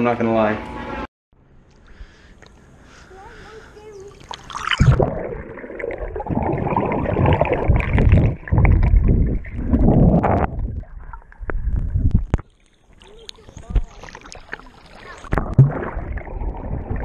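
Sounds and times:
muffled underwater churning and bubbling: 4.4 - 17.0
splash into water: 13.0 - 17.0.

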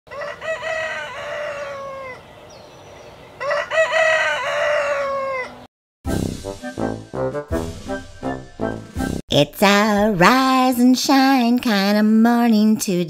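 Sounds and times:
rooster crowing: 0.1 - 2.4, 3.4 - 5.7.

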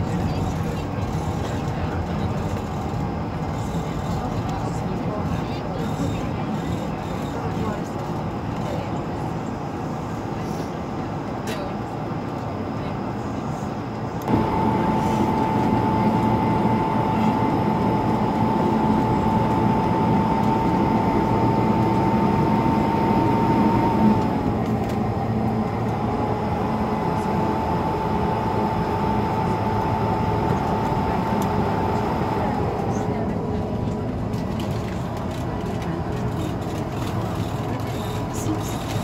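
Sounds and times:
airplane cabin rumble: 7.6 - 39.0
jet engine whine: 12.3 - 39.0.

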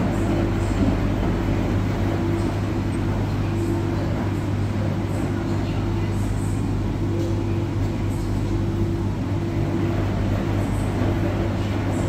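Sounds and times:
washing machine running: 0.0 - 12.0.

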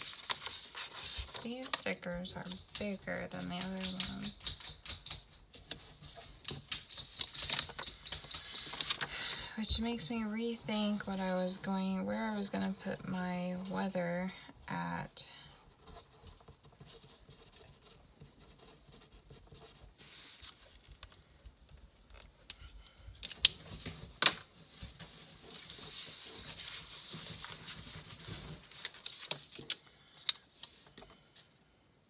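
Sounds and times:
paper rustling and sliding: 0.0 - 4.7, 5.6 - 10.0, 15.8 - 21.3, 23.2 - 31.4.

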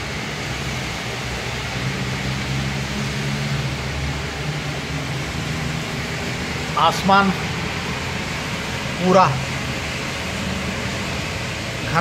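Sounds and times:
heavy rain hissing: 0.0 - 12.0
vehicle engines humming: 0.0 - 12.0.

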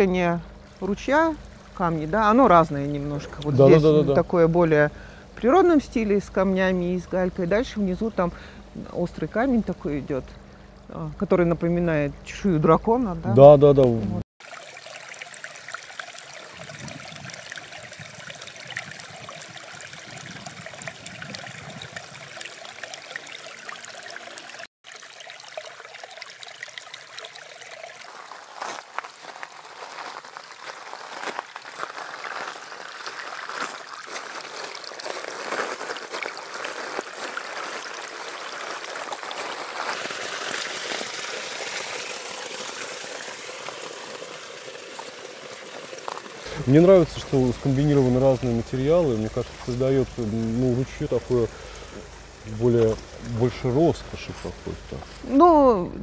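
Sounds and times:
brook babbling over stones: 0.0 - 8.0, 14.4 - 55.8.

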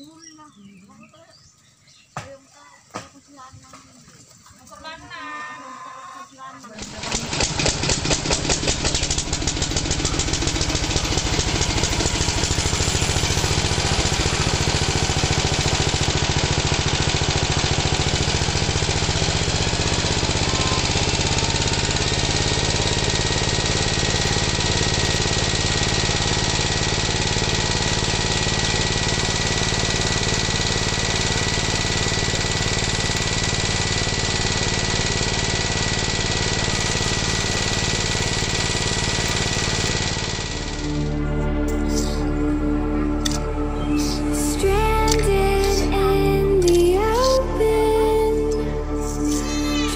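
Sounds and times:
small diesel engine chugging: 6.7 - 49.9.

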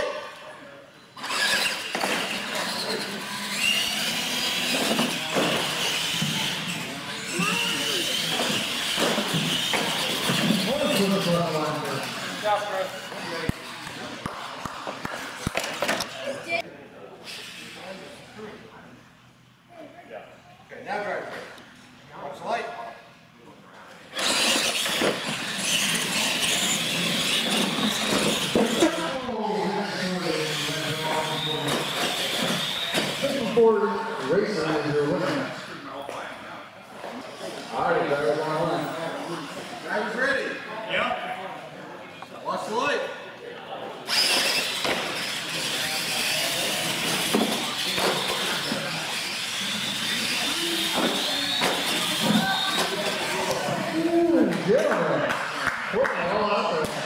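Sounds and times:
toy truck motors whining: 1.2 - 16.6, 17.2 - 18.0, 24.1 - 35.7, 44.0 - 54.2.

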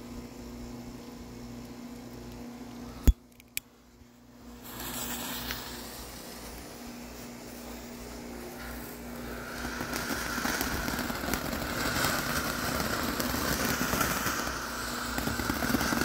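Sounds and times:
low steady hum: 0.0 - 16.0
firework fountain hissing: 4.1 - 16.0.

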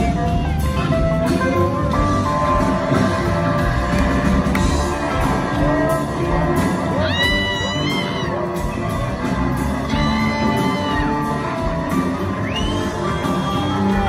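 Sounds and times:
rock band playing live: 0.0 - 14.0
high whistle: 12.4 - 14.0.

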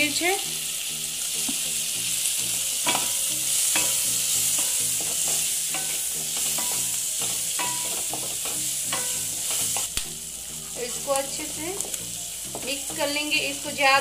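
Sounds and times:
vegetables sizzling in a pan: 0.0 - 14.0
spatula scraping and tapping pan: 2.8 - 10.1, 11.1 - 13.2.

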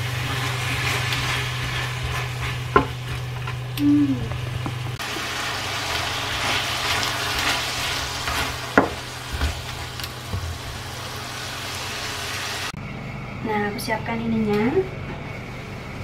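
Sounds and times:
spatula stirring in a wok: 0.0 - 3.7
food sizzling in a wok: 0.0 - 12.8.

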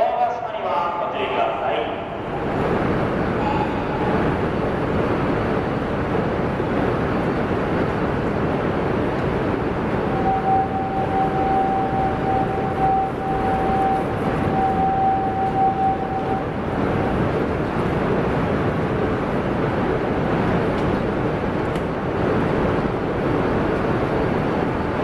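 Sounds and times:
high electronic tone: 10.1 - 17.2.

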